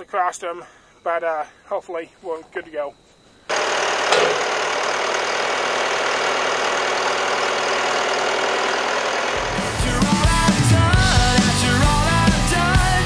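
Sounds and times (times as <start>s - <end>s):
diesel engine running: 3.5s - 13.0s.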